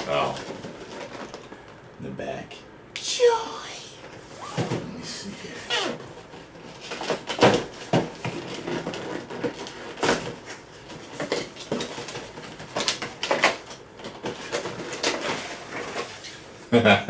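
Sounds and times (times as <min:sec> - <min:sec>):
cardboard scraping and rustling: 0:05.9 - 0:16.5.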